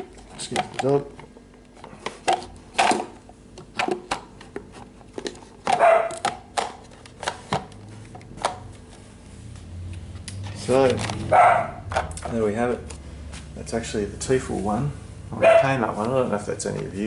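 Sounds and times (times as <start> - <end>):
plastic parts clicking and knocking: 0.0 - 8.6, 10.8 - 11.3, 11.9 - 12.4
dog barking: 5.7 - 6.2, 11.3 - 11.8, 15.4 - 15.8.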